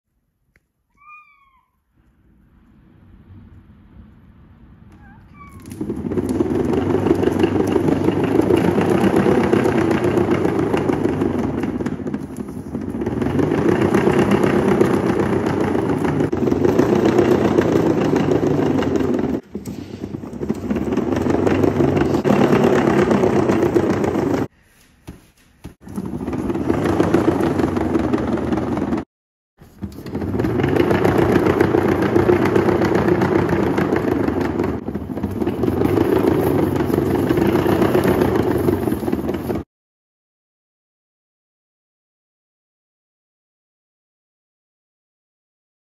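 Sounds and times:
cat exercise wheel rumbling: 2.2 - 24.5, 25.7 - 39.7.

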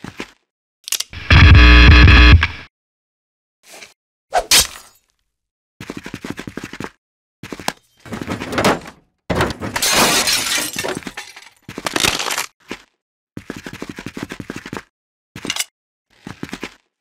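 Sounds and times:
clattering and crashing effects: 8.0 - 11.6.

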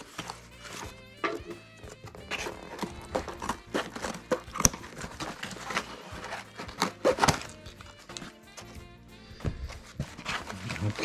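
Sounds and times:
envelope and cardboard rustling: 0.0 - 11.0
quiet background music: 0.0 - 11.0
scissors snipping: 2.3 - 8.6.

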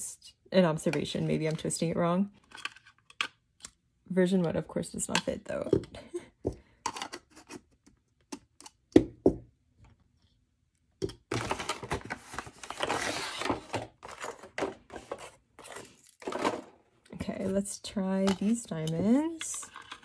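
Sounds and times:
plastic parts knocking and clicking: 11.0 - 12.1
rustling and scraping: 11.3 - 20.0.

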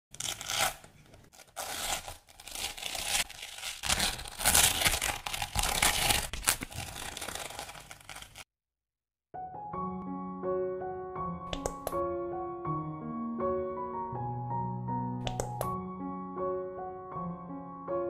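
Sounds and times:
masking tape peeling off paper: 0.1 - 8.5.

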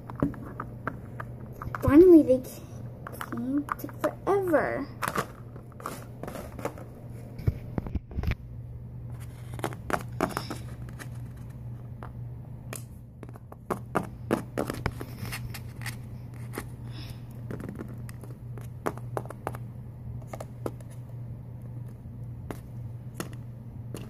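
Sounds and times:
steady low hum: 0.0 - 24.0
plastic toys clicking and scraping: 3.1 - 6.9.

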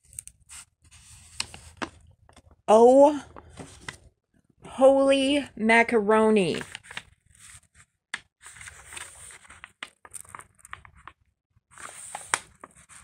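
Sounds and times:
plastic sheet crinkling: 6.5 - 7.7, 8.4 - 11.2, 11.8 - 13.0
sharp plastic crackles: 8.2 - 11.2.

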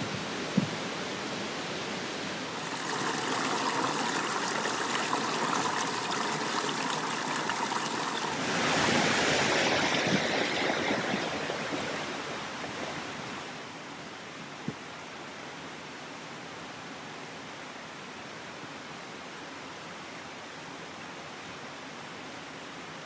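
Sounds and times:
stream rushing over boulders: 0.0 - 15.7.

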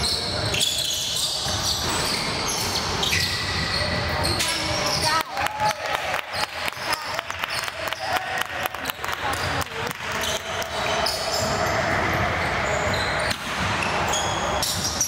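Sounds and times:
crowd noise: 0.0 - 15.0
basketball bouncing on gym floor: 8.9 - 11.5.

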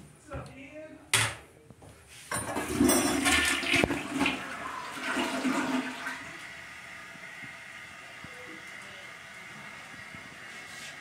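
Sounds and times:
toilet flush rushing water: 2.4 - 10.5.

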